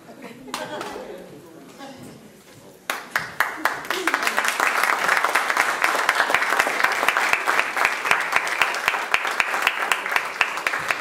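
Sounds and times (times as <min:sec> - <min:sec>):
audience applauding: 0:02.9 - 0:11.0.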